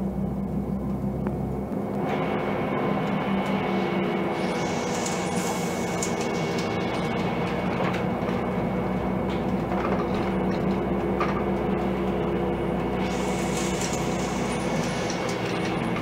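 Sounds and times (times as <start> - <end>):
bus engine drone: 0.0 - 16.0
rolling road noise: 0.0 - 16.0
thin high whine: 2.0 - 7.1.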